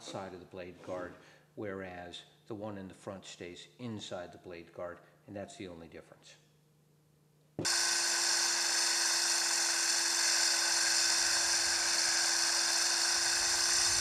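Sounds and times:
circular saw cutting concrete: 7.6s - 14.0s
shop vacuum hissing: 7.6s - 14.0s.

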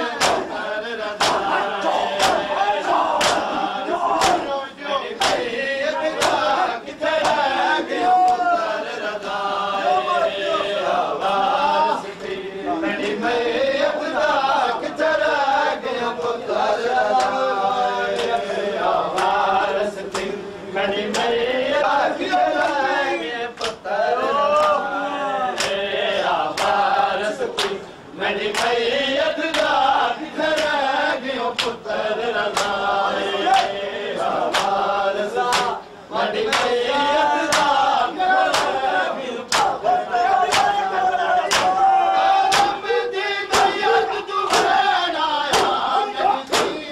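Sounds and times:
men chanting in unison: 0.0s - 46.9s
hands slapping bare chests: 0.2s - 0.5s, 1.2s - 1.5s, 2.1s - 2.5s, 3.2s - 3.6s, 4.2s - 4.5s, 5.2s - 5.5s, 6.2s - 6.5s, 34.5s - 34.8s, 35.5s - 35.8s, 38.5s - 38.8s, 39.5s - 39.8s, 40.5s - 40.8s, 41.5s - 41.8s, 42.5s - 42.8s, 44.5s - 44.8s, 45.5s - 45.8s, 46.5s - 46.8s.

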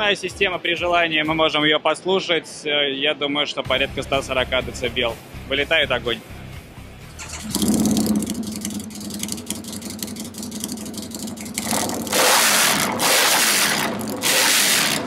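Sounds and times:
motorcycle engine revving: 7.1s - 15.0s
motorcycle engine idling: 7.2s - 12.2s.

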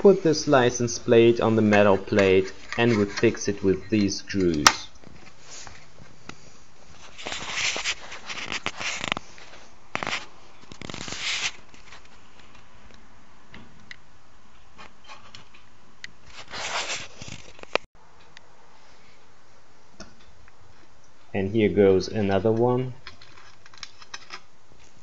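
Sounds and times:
metal rubbing and scraping: 0.0s - 4.7s.

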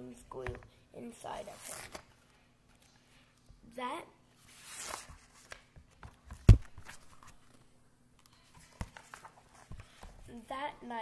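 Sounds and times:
book page rustling: 4.4s - 10.1s.

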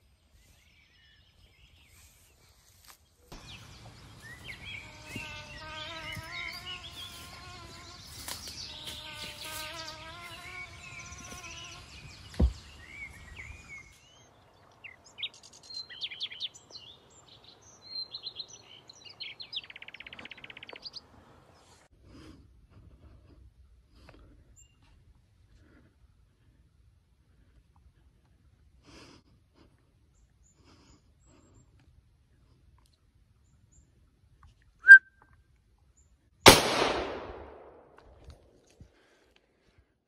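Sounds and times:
birds chirping: 0.0s - 21.8s
insects buzzing: 3.4s - 13.2s
wavering bird call: 34.8s - 35.1s.

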